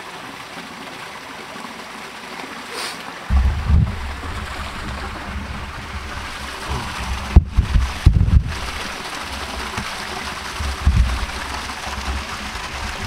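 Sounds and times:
creek water running over rocks: 0:00.0 - 0:13.0
sharp low thumps: 0:03.3 - 0:13.0
wind rumbling on microphone: 0:03.3 - 0:13.0.

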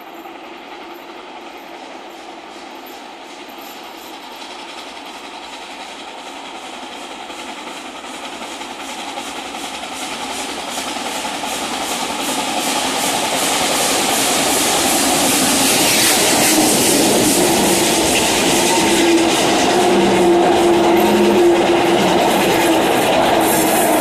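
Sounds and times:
coaches clickety-clack: 0:00.0 - 0:24.0
steam locomotive exhaust beats: 0:00.0 - 0:24.0.

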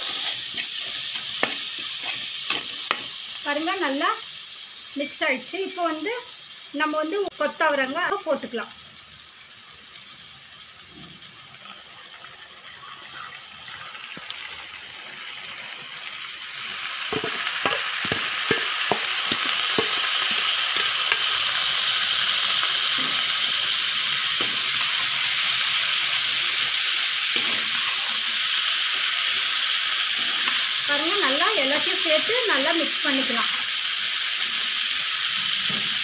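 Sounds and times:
spatula stirring: 0:00.0 - 0:03.1
hot oil sizzling in a pan: 0:00.0 - 0:36.0.

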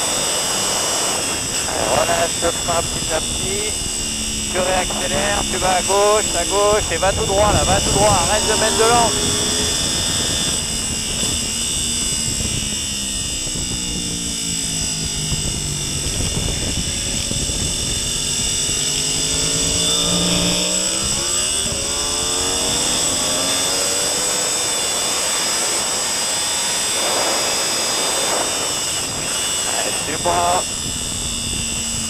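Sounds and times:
wind rush: 0:00.0 - 0:13.8, 0:26.6 - 0:32.0
motorcycle engine accelerating: 0:00.0 - 0:32.0.

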